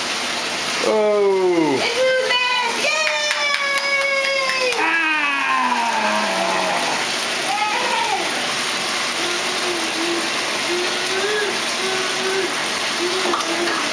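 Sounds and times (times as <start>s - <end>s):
bath tap running into tub: 0.0s - 13.9s
toddler babbling and humming: 9.2s - 13.9s.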